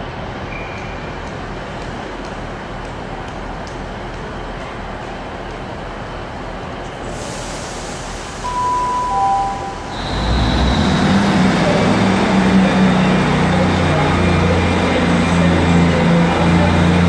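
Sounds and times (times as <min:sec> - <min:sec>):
electric train rumble: 0:01.2 - 0:17.0
train high whine: 0:06.2 - 0:17.0
two-note tone: 0:08.4 - 0:10.5.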